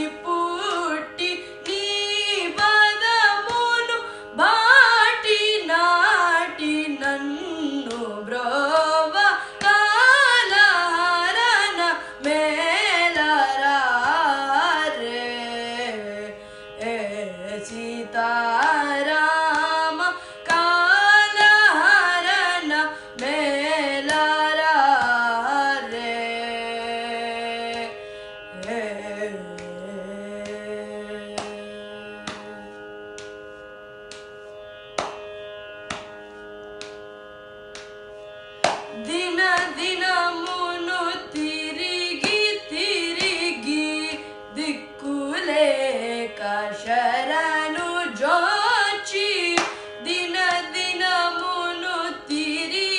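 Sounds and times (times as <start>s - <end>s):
boy singing: 0.0s - 28.0s, 28.6s - 32.6s, 39.0s - 52.9s.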